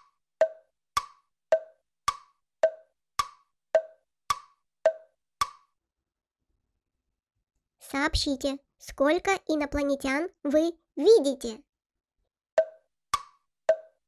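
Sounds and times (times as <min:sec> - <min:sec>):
tick-tock wood-block clicks: 0:00.0 - 0:05.7, 0:12.6 - 0:14.0.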